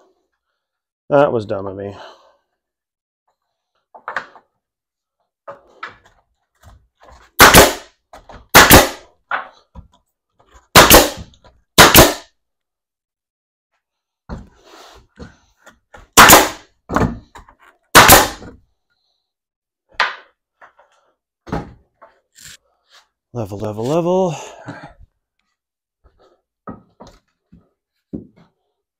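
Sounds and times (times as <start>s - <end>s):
hammer banging on wood: 10.8s - 12.2s, 16.2s - 17.4s, 18.0s - 18.6s.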